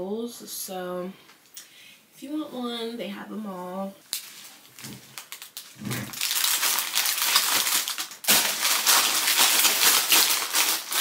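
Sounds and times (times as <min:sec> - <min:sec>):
plastic packaging crinkling: 0:04.0 - 0:11.0.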